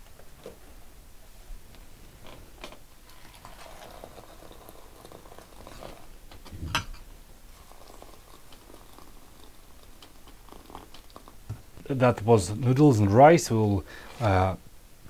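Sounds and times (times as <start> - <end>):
hot water pouring from kettle: 3.0 - 11.5.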